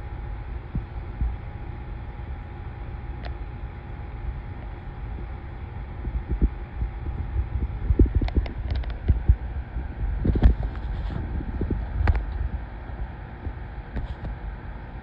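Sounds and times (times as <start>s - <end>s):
faint steady hum: 0.0s - 15.0s
low rumble: 4.0s - 14.3s.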